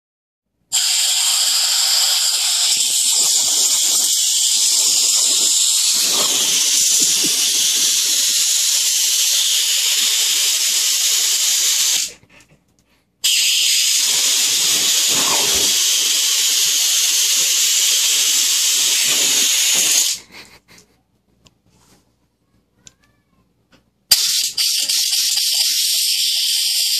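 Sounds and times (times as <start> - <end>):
compressed air hissing from nozzle: 0.7 - 12.2, 13.2 - 20.3, 24.1 - 26.9.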